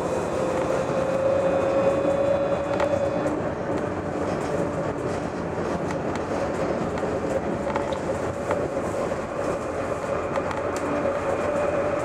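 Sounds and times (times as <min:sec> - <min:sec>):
tram motor whine rising in pitch: 0:00.0 - 0:03.7
tram wheels rumbling on rail: 0:00.0 - 0:12.0.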